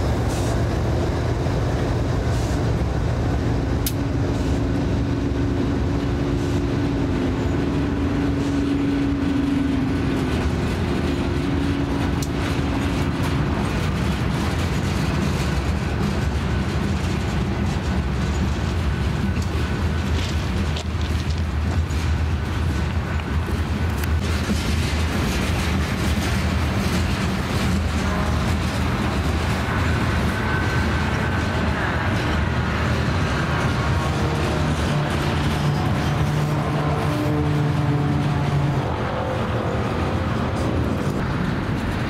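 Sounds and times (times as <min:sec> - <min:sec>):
diesel locomotive drone: 0:00.0 - 0:42.0
train cars rumbling on rails: 0:00.0 - 0:42.0.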